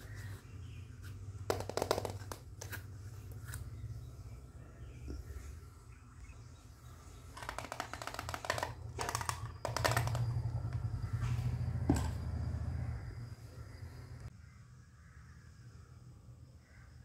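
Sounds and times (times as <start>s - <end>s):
plastic toy pieces clicking: 7.4s - 10.5s
steady low hum: 8.7s - 15.9s.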